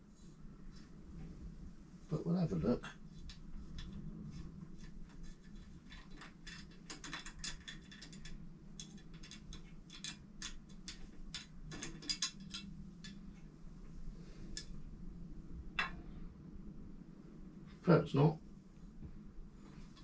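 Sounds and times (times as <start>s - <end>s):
faint low hum: 0.0s - 20.0s
light metal clicks and ticks: 5.5s - 13.5s.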